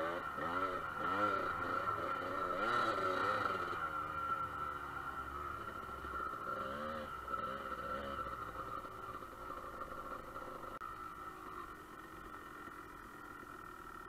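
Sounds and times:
dirt bike engine revving: 0:00.0 - 0:14.0.

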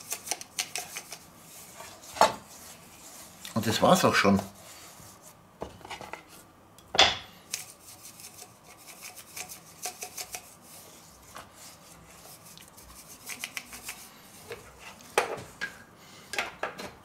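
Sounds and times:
salt mill grinding: 0:07.5 - 0:10.6, 0:12.5 - 0:14.1.

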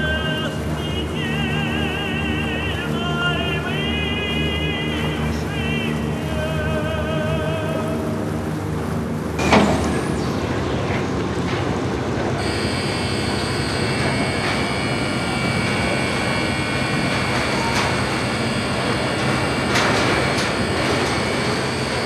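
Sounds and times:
ferry engines running: 0:00.0 - 0:22.0
high whine: 0:00.0 - 0:22.0
loud clunk: 0:09.4 - 0:10.1.

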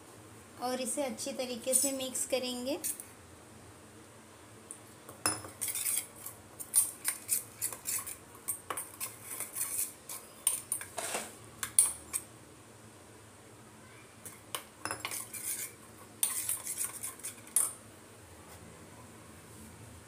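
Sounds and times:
spoon scraping steel bowl: 0:05.3 - 0:12.2, 0:14.3 - 0:17.8.

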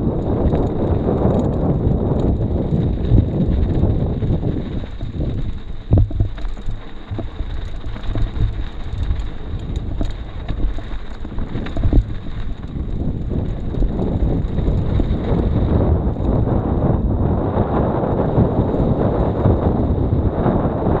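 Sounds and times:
wind rumbling on microphone: 0:00.0 - 0:21.0
knocks and bumps: 0:04.9 - 0:08.8.

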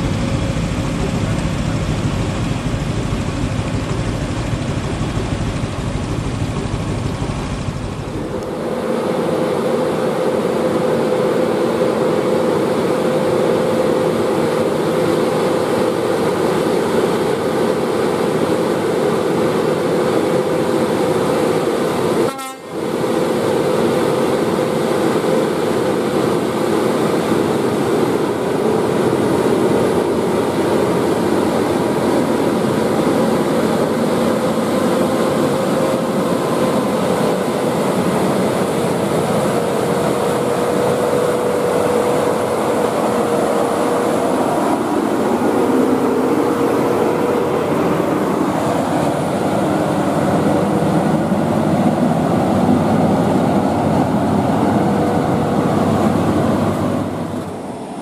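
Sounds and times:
truck diesel engine droning: 0:00.0 - 0:58.0.

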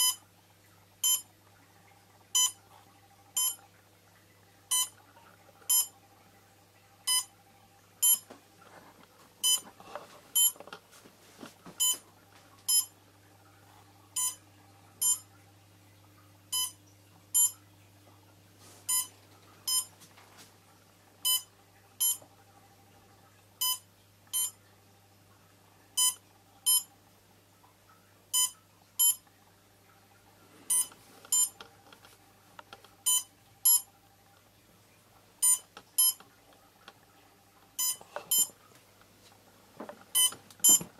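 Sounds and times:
faint steady hum: 0:00.0 - 0:40.9
high sharp electronic beeps: 0:15.0 - 0:15.2, 0:17.4 - 0:17.6, 0:40.2 - 0:40.8.

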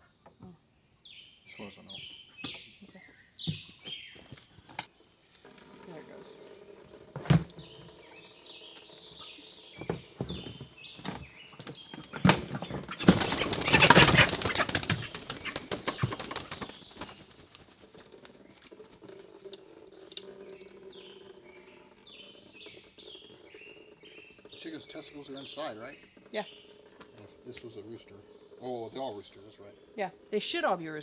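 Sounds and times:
small birds chirping: 0:00.0 - 0:31.0
water splashing in a pot: 0:05.2 - 0:10.2, 0:12.9 - 0:25.7.

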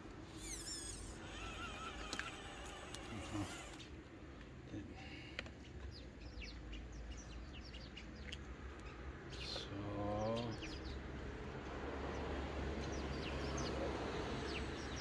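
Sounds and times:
birds chirping: 0:00.3 - 0:15.0.

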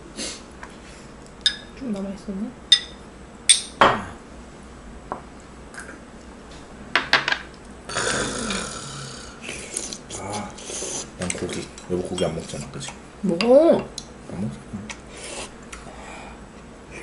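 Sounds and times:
rough throaty noise: 0:07.9 - 0:09.6.

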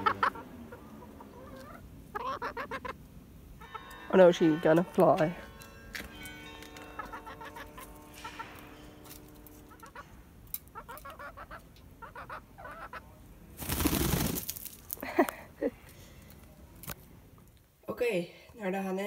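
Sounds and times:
hen clucking: 0:00.0 - 0:04.6, 0:06.8 - 0:13.2
wings flapping: 0:13.6 - 0:15.0.

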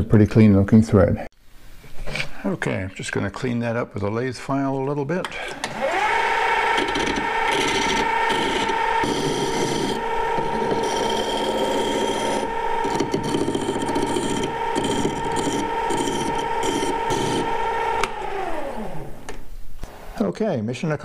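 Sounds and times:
lathe motor whine: 0:05.5 - 0:19.4.

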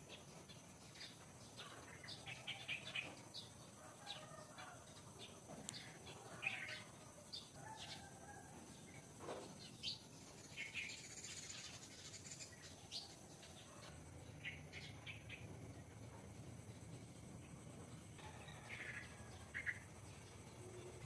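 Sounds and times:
low outdoor background noise: 0:00.0 - 0:21.0
faint bird chirps: 0:00.1 - 0:09.0.

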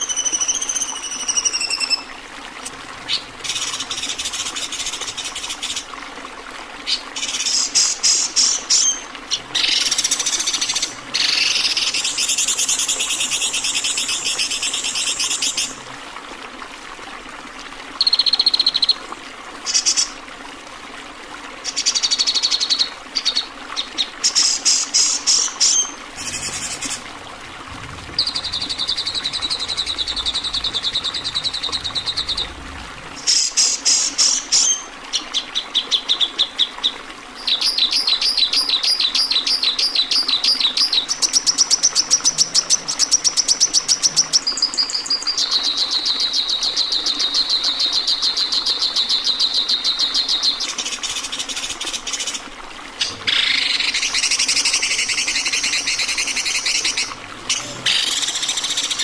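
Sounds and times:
songbirds singing trills: 0:28.1 - 0:32.6.

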